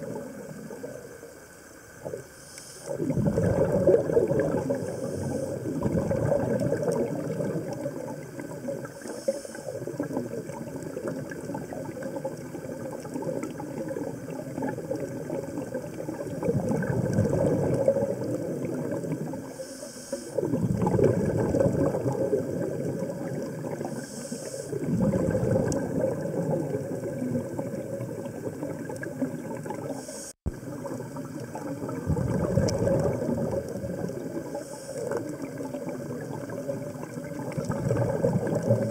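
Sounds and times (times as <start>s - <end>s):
exhaled bubbles: 0.0s - 38.9s
regulator inhale hiss: 1.7s - 3.0s, 4.8s - 5.8s, 8.8s - 9.9s, 19.4s - 20.4s, 23.8s - 24.9s, 29.9s - 30.5s, 34.4s - 35.4s.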